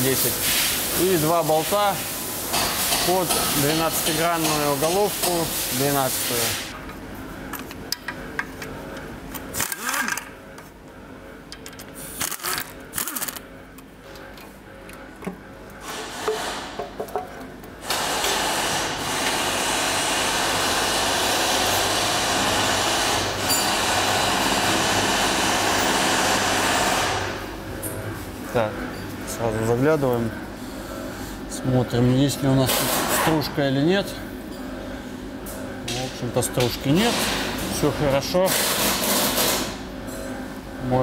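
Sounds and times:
pneumatic ratchet spinning: 9.5 - 10.3, 12.1 - 13.4.

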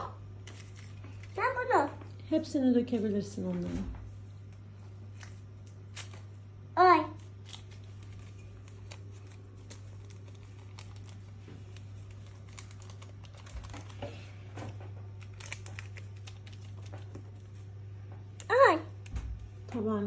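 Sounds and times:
steady low hum: 0.0 - 20.0
small clicks and crinkles of handling: 0.4 - 1.4, 4.4 - 6.3, 7.2 - 19.8.

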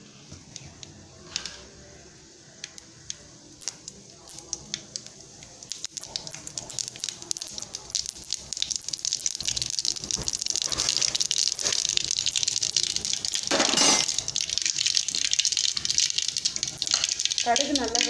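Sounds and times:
oil sizzling: 0.4 - 18.0
seeds popping in hot oil: 2.6 - 18.0.

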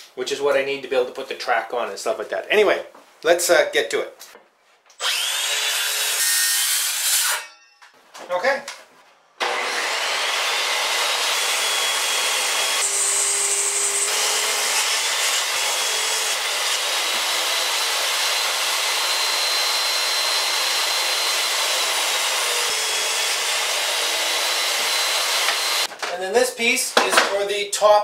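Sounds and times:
table saw cutting wood: 5.0 - 7.5, 9.4 - 25.9.

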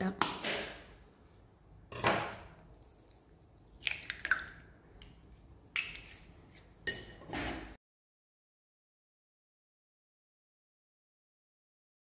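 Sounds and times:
eggshell cracking: 2.6 - 6.3.

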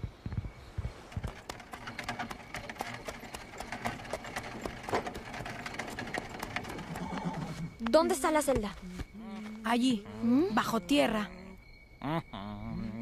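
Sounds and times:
horse hooves clip-clopping: 0.0 - 9.1.

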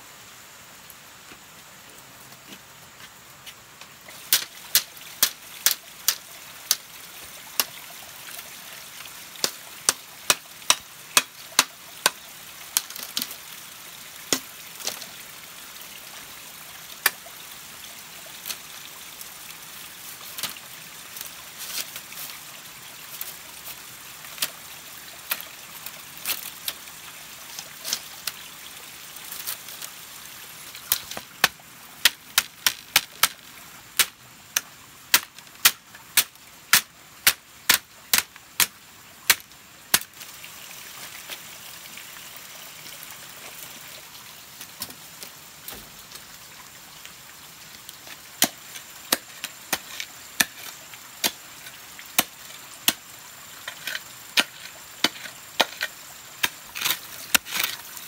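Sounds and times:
blade chopping bamboo: 4.3 - 6.8, 9.4 - 13.3, 30.9 - 33.4, 34.0 - 40.2, 48.0 - 51.4, 53.6 - 57.8.

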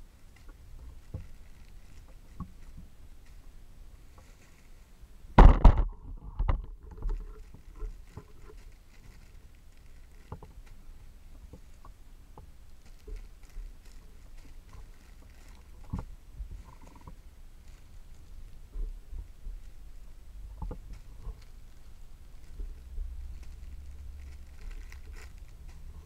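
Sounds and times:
plastic bags crinkling: 0.0 - 3.4, 6.7 - 11.0, 12.6 - 26.0.

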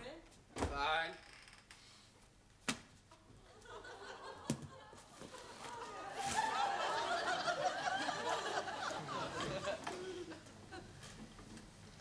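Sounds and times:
audience laughter: 3.6 - 11.0.

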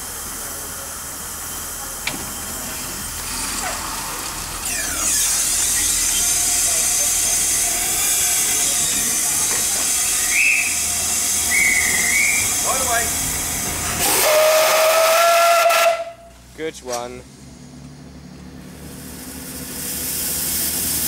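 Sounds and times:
steam locomotive hissing: 0.0 - 16.3, 18.6 - 21.0
steam whistle blast: 10.2 - 12.6, 14.0 - 16.3.

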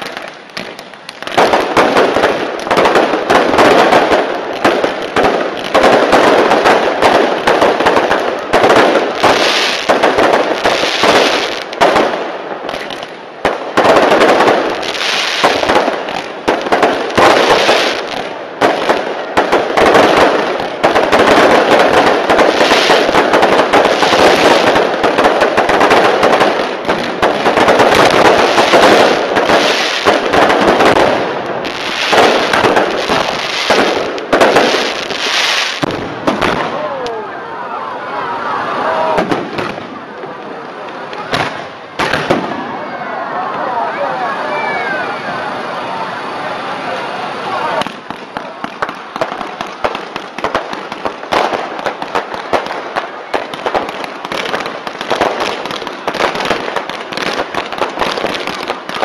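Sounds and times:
fireworks crackling and bursting: 0.0 - 59.0.

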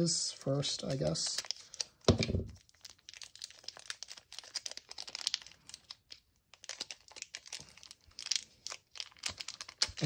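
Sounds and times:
plastic packaging crinkling: 0.8 - 10.0.

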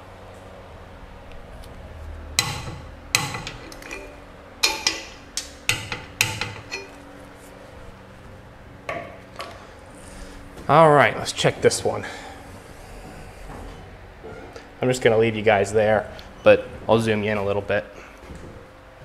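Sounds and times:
steel tools clanking on metal: 2.4 - 7.0.

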